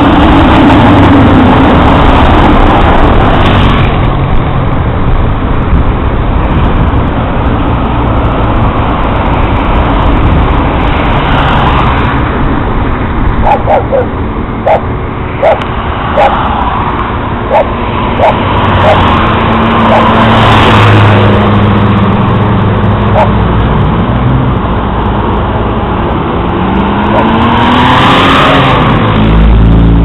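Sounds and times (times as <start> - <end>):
cars passing: 0.0 - 30.0
heavy truck passing: 0.0 - 30.0
dog barking: 13.4 - 14.8, 15.4 - 15.6, 16.2 - 16.4, 17.5 - 19.0, 19.9 - 20.1, 23.1 - 23.4.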